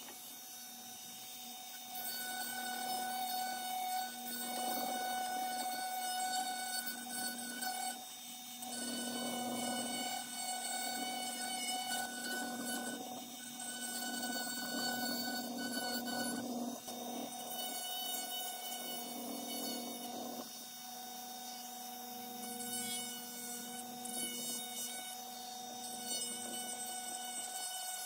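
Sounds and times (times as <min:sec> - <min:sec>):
rotary tool grinding wood: 0:00.0 - 0:28.0.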